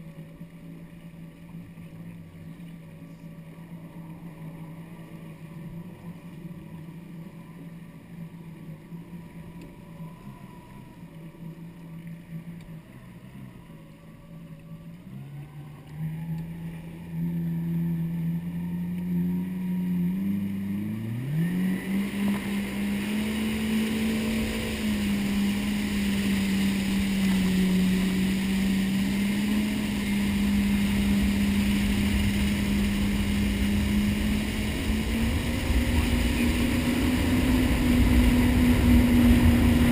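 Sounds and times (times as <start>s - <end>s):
jet ski engine revving: 0.0s - 39.9s
rushing water and spray: 15.6s - 39.9s.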